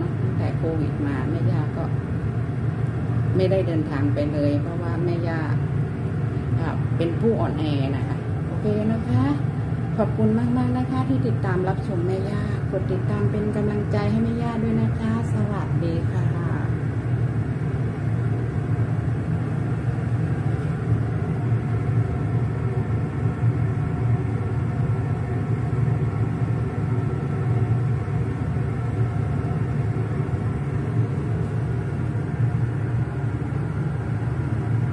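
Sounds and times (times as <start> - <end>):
soup boiling in pot: 16.7 - 34.9.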